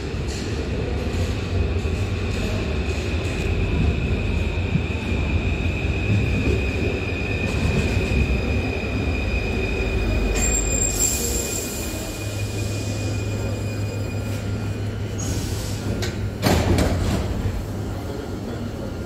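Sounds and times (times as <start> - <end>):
train rumbling while braking: 0.0 - 19.0
high-pitched wheel squeal: 10.4 - 14.5.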